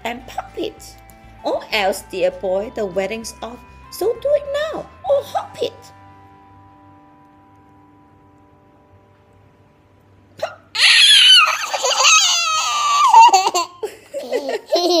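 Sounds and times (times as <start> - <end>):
girl and woman laughing: 11.2 - 15.0.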